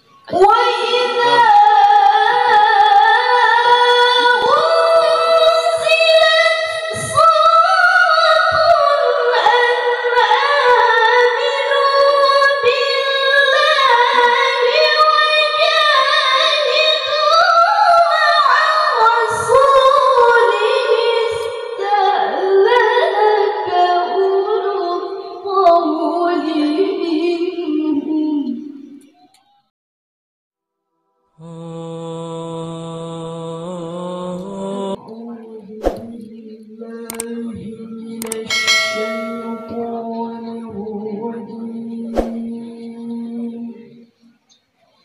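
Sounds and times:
woman chanting into microphone: 0:31.4 - 0:44.1.

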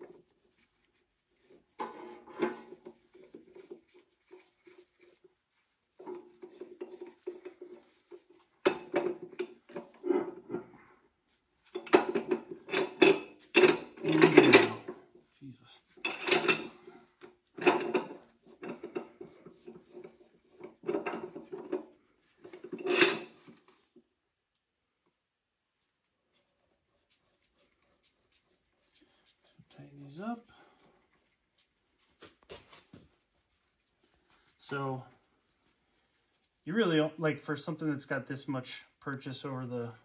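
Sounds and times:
steel parts clinking and scraping: 0:11.6 - 0:15.0, 0:15.9 - 0:16.8, 0:17.5 - 0:23.6.

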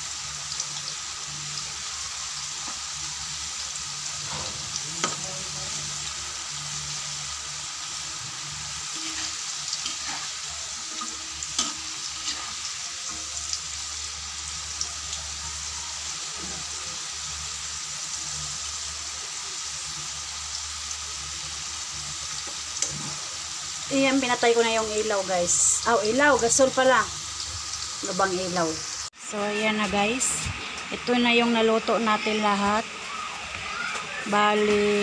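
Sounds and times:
food sizzling in oil: 0:00.0 - 0:35.0.

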